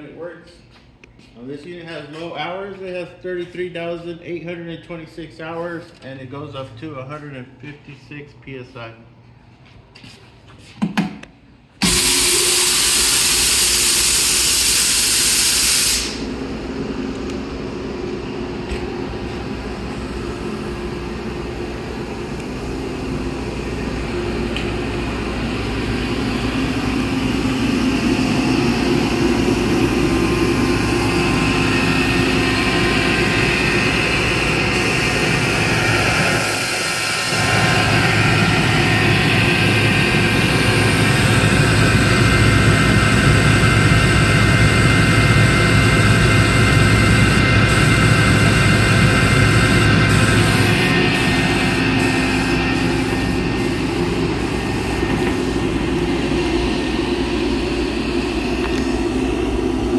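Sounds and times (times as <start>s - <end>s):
air compressor running: 10.0s - 59.9s
loud rushing air hiss: 11.8s - 16.4s, 25.1s - 44.2s, 47.2s - 59.9s.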